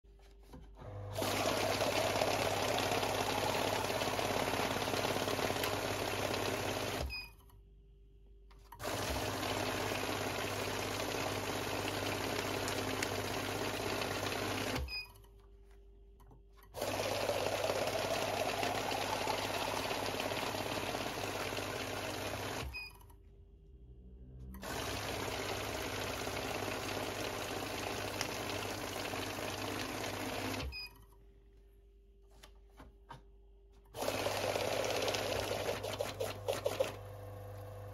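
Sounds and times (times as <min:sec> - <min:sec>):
banknote counting machine riffling: 0:34.0 - 0:37.0.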